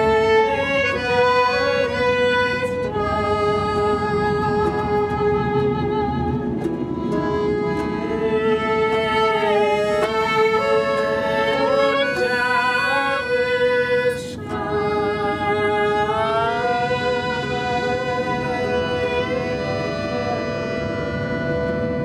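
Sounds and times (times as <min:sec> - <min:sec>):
accordion: 0:00.0 - 0:22.0
plucked lute: 0:00.0 - 0:22.0
violin: 0:00.0 - 0:22.0
woman singing: 0:07.8 - 0:20.4
man singing: 0:08.3 - 0:20.8.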